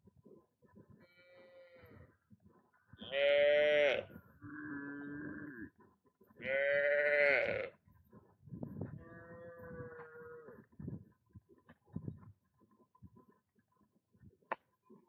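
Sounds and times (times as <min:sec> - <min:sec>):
farm animals bleating: 0:00.9 - 0:02.2, 0:02.9 - 0:07.9, 0:08.9 - 0:10.7.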